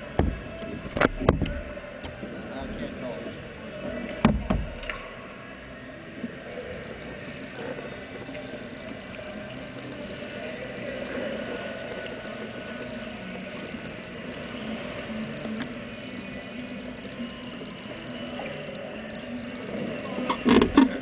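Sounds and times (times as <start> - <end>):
water lapping at plastic hull: 0.0 - 5.3, 6.3 - 21.0
indoor pool hall hum: 0.0 - 21.0
kayak paddle strokes: 6.2 - 21.0.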